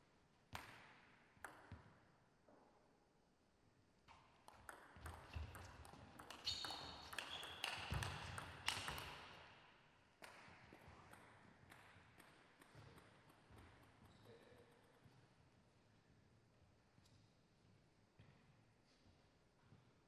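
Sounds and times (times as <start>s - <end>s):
table tennis ball clicks: 4.4s - 9.2s
high squeaks: 6.4s - 7.8s.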